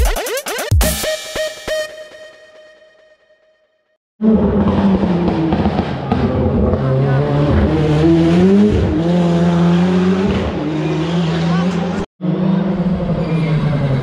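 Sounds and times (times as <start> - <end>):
rally car engine revving: 4.2 - 14.0.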